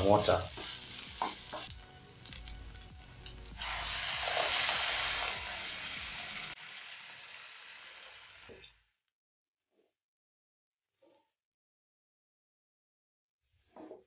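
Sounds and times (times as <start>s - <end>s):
water sizzling in hot pan: 0.0s - 8.9s.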